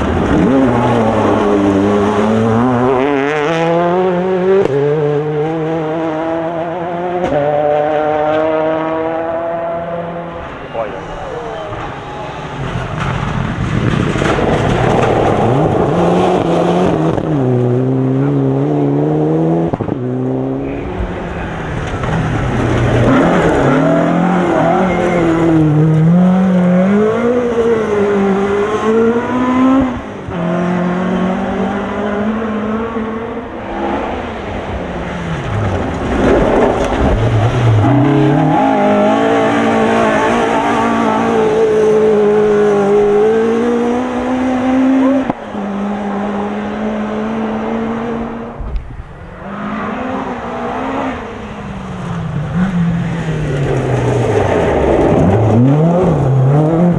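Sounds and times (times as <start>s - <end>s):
rally car engines at full throttle: 0.0s - 56.9s.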